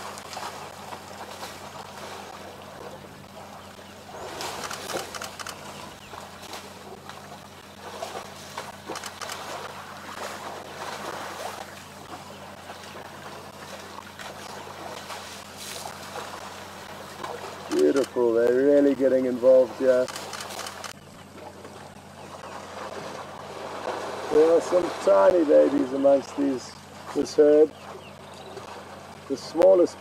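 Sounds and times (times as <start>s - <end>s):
steady low hum: 0.0s - 30.0s
water splashing and sloshing: 0.0s - 30.0s
sharp clicks: 4.6s - 5.6s, 8.9s - 9.4s, 17.7s - 18.2s, 20.0s - 21.0s.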